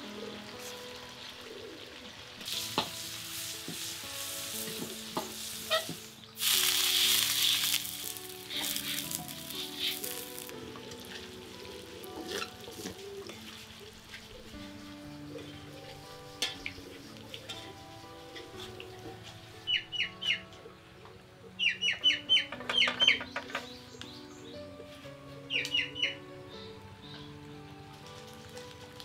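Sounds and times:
chicken sizzling in oil: 0:00.0 - 0:19.0
oil poured into hot wok: 0:02.4 - 0:11.2.

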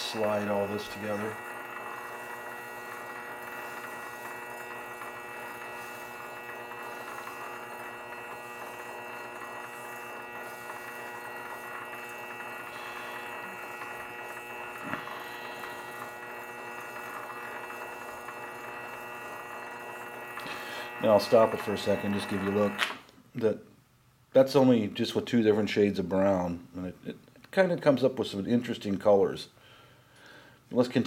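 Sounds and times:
lathe humming and whining: 0:00.0 - 0:23.0.

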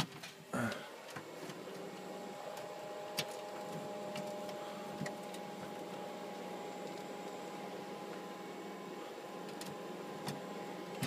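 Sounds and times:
cooling fans whirring: 0:00.0 - 0:11.0.

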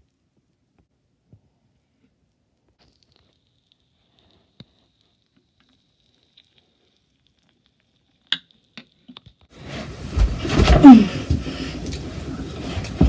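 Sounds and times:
soda fizzing in a bowl: 0:02.8 - 0:09.1.

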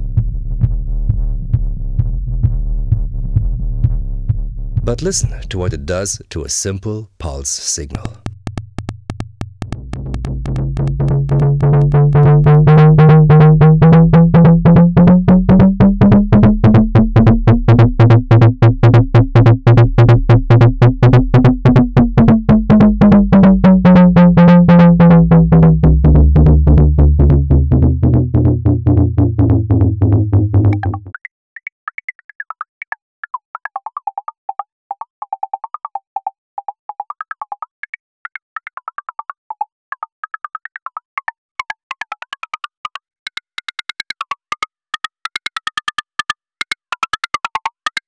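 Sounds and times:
resonant synthesizer pulse train: 0:08.2 - 0:16.8, 0:22.2 - 0:31.1.

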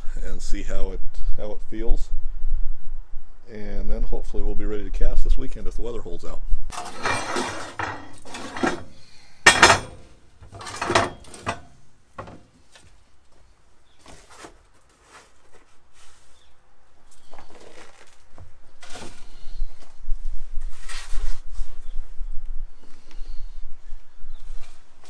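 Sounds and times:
steel pipes clanking on metal: 0:06.7 - 0:12.5
light knocks and scrapes: 0:06.7 - 0:13.0, 0:14.0 - 0:16.4.

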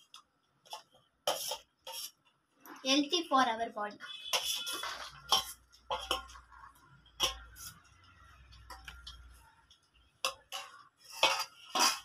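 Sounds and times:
food scraped from bowl: 0:00.7 - 0:02.2, 0:04.2 - 0:09.2, 0:10.5 - 0:12.0
steel bowl clinking on plate: 0:04.4 - 0:06.5, 0:10.2 - 0:12.0.

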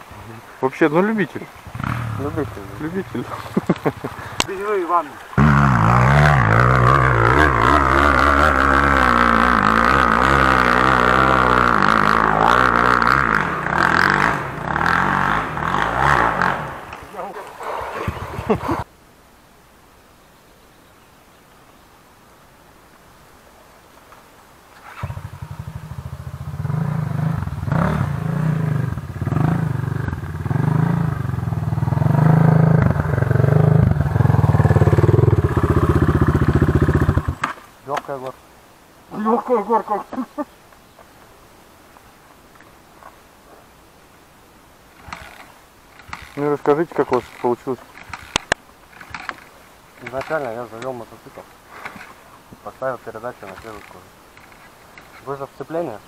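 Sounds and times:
dirt bike engine revving: 0:01.6 - 0:18.8, 0:24.8 - 0:37.5, 0:44.9 - 0:50.6.

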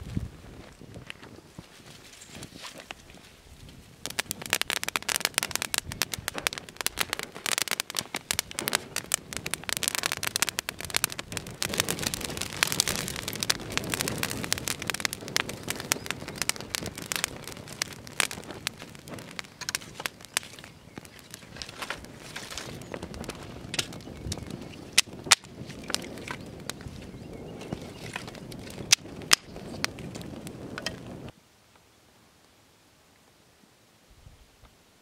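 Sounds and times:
dry grass fire crackling: 0:00.0 - 0:31.4.

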